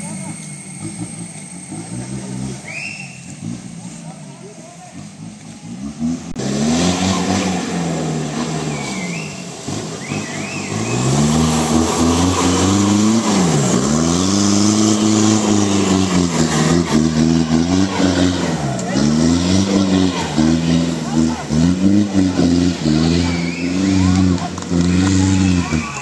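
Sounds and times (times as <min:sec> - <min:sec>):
engine revving hard: 0:05.2 - 0:26.0.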